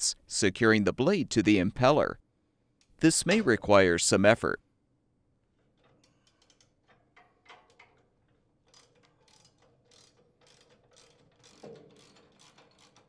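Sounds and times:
ratchet wrench clicking: 5.8 - 13.0.

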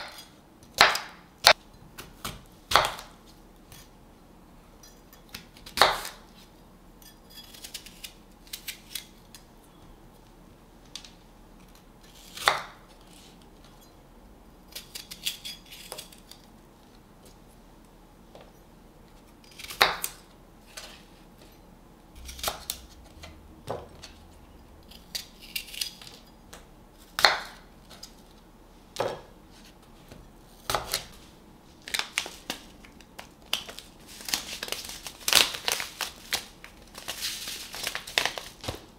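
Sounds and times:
knife slicing apple: 12.0 - 13.4, 22.2 - 24.2, 30.6 - 31.2.

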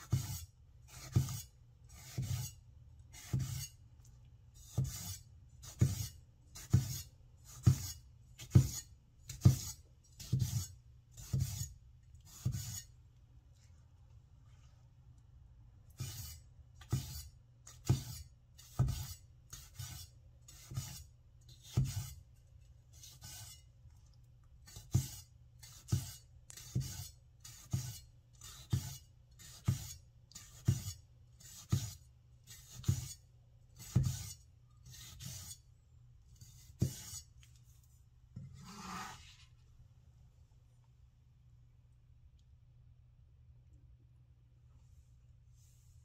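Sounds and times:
blade scraping across board: 33.8 - 35.6, 36.4 - 37.3, 38.4 - 39.6.

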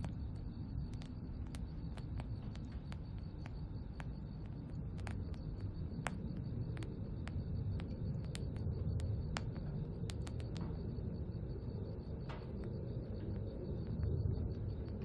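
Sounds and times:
sharp ticks: 0.0 - 11.1.

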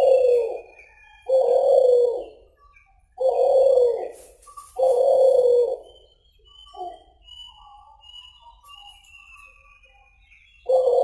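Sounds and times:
dove cooing: 0.0 - 2.4, 3.2 - 6.0, 10.6 - 11.0
faint high whistles: 4.0 - 11.0.

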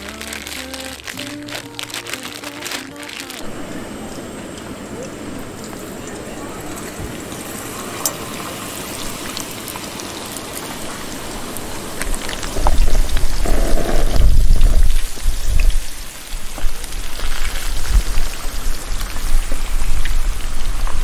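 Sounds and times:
chicken deep-frying in oil: 4.0 - 21.0.

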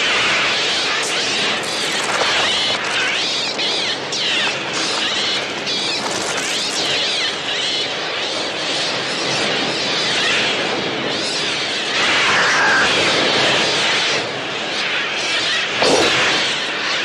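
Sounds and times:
seagulls shrieking: 11.2 - 14.0.

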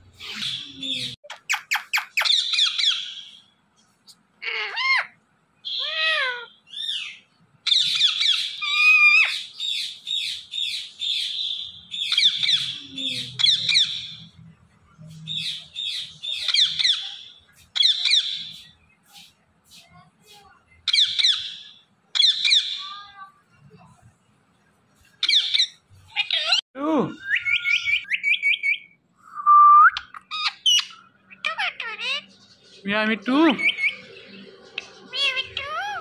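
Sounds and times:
parakeet shrill calls: 0.2 - 3.4, 4.4 - 14.2, 15.4 - 18.7, 20.9 - 23.0, 25.2 - 26.6, 30.0 - 32.4, 33.5 - 36.0.

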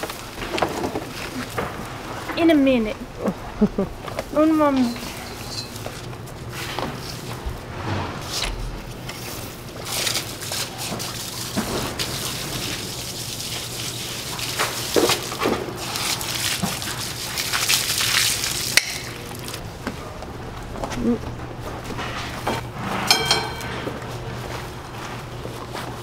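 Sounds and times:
steady low hum: 0.0 - 17.7, 18.5 - 26.0
water hissing from a hose: 9.9 - 19.5.

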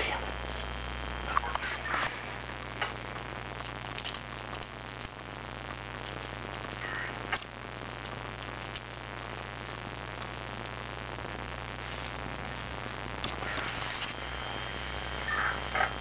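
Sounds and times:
electrical hum and hiss: 0.0 - 16.0.

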